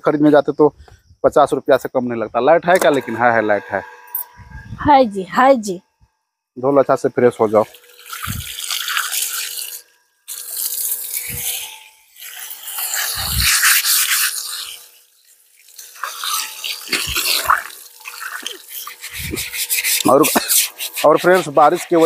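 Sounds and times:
water running from hose: 7.2s - 22.0s
brush scrubbing cement: 7.4s - 15.1s, 15.7s - 22.0s.

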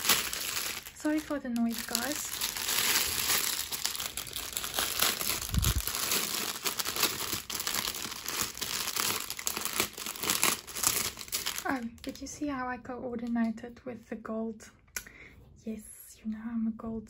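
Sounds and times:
packaging crinkling and rustling: 0.0s - 12.2s.

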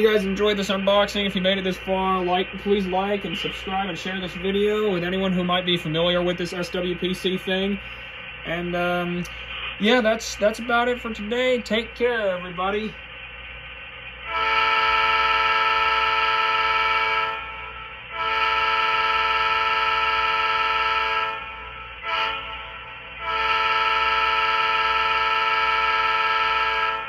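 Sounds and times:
low steady hum: 0.0s - 27.0s
model train air horn: 14.2s - 27.0s.

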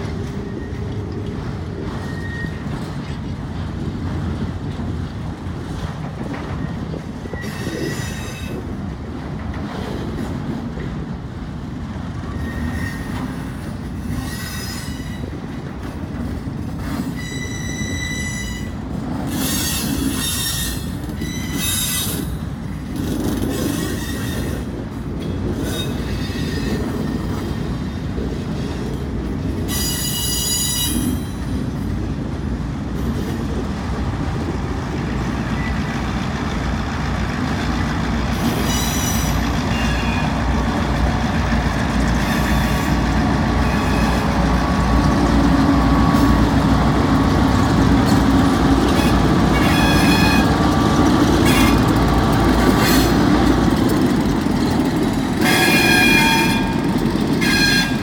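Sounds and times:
steel wheels squealing: 1.8s - 3.2s, 6.6s - 8.7s, 12.2s - 15.4s, 16.9s - 24.8s, 25.6s - 27.4s, 29.7s - 31.6s, 35.4s - 36.1s, 38.3s - 41.5s, 42.1s - 44.5s, 48.8s - 53.2s, 53.8s - 58.0s
freight cars rumbling past: 32.0s - 58.0s.

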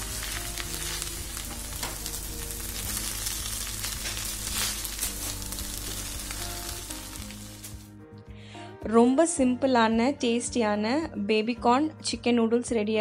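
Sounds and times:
noodles sizzling in a pan: 0.0s - 7.9s.

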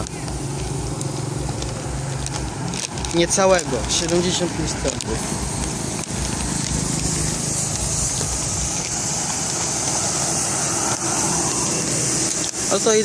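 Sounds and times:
pickup truck driving past: 0.0s - 12.7s
motorbike engine passing: 0.0s - 12.8s
steady high hiss: 0.0s - 13.0s.

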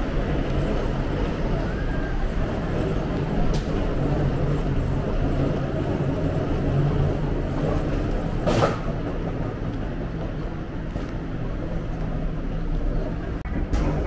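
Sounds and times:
rumble of idling vehicles: 0.0s - 14.0s.

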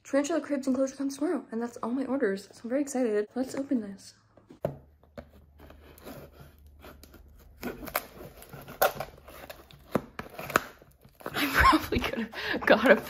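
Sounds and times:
knife slicing packing tape: 6.8s - 11.2s.

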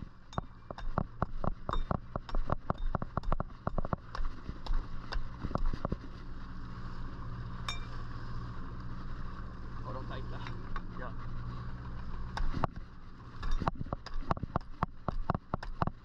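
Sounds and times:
boat engine humming: 0.0s - 16.0s
metallic clink: 7.7s - 8.0s.

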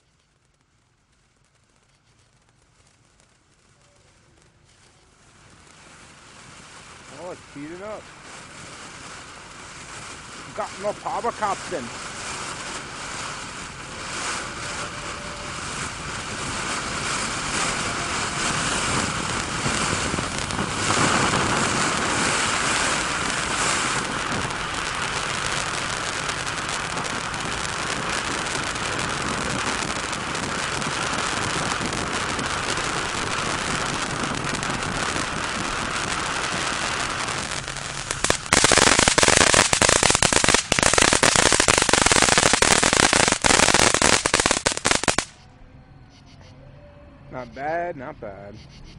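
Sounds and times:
firework fountain hissing: 0.0s - 45.4s
firework rapid crackling: 0.0s - 45.4s.

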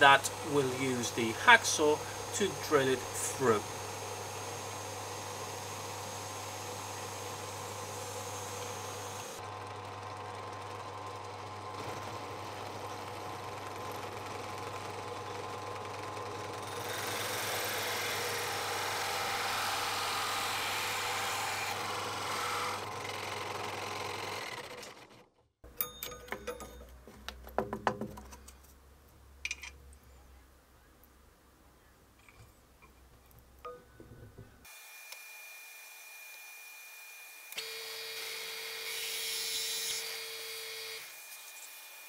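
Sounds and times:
hole saw cutting: 0.0s - 25.2s, 34.6s - 42.0s
drill press boring into wood: 0.1s - 25.2s, 37.5s - 41.9s
clicks and rattles of handling: 25.8s - 28.8s, 29.4s - 29.9s.

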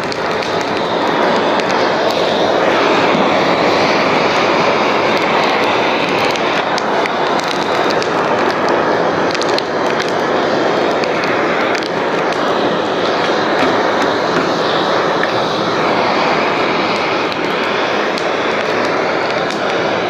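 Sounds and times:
heat gun fan blowing: 0.0s - 20.0s.

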